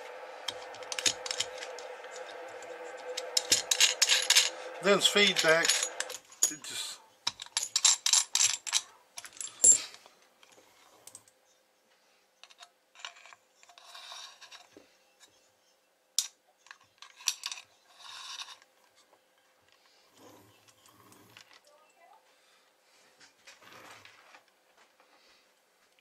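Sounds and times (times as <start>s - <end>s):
cables rubbing: 0.0s - 6.2s
metal plugs clinking: 0.5s - 6.6s.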